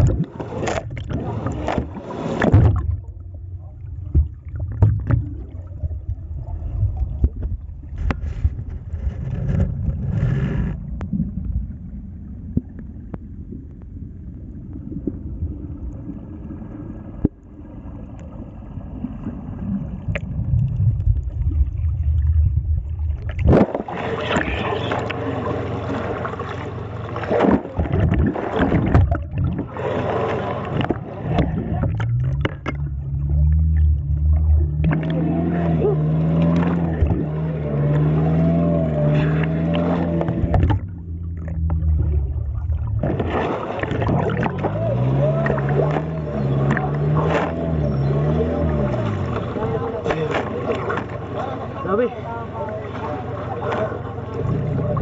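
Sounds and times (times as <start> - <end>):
underwater knocks: 0.0 - 6.2, 26.5 - 29.8, 30.6 - 35.8, 36.4 - 38.2, 39.3 - 47.7
muffled underwater rumble: 0.0 - 55.0
water rushing: 0.0 - 55.0.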